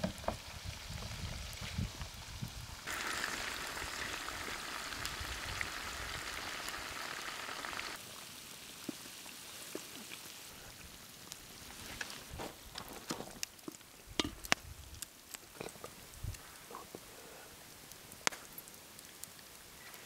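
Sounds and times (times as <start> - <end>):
meat sizzling in hot fat: 0.0 - 11.7
fat crackling: 2.9 - 8.0.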